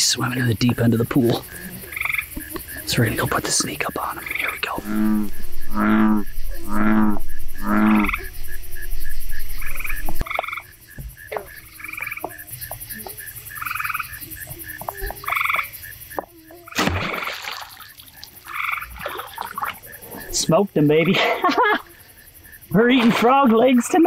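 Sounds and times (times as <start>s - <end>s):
chorus of pulsing chirps: 0.0s - 22.9s
bullfrog croaking: 0.0s - 24.0s
bow shot and arrow impact: 16.8s - 17.3s.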